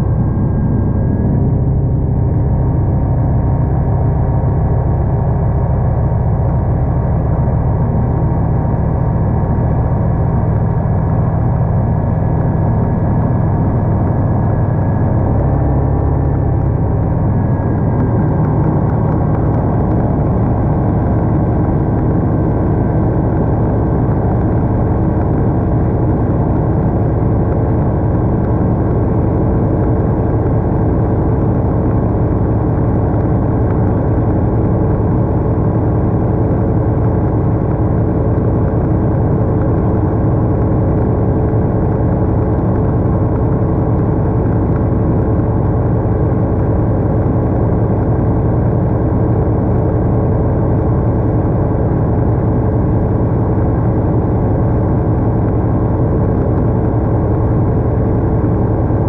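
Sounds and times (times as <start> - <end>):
light aircraft engine drone: 0.0 - 59.0.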